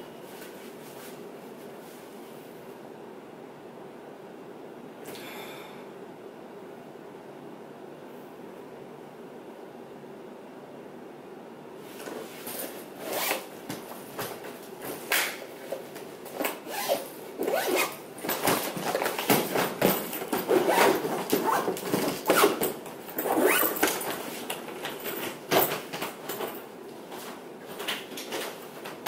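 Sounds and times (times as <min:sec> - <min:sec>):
suitcase zipper pulled shut: 0:13.0 - 0:13.5, 0:16.4 - 0:18.5, 0:20.4 - 0:24.0
suitcase knocks: 0:18.2 - 0:22.8.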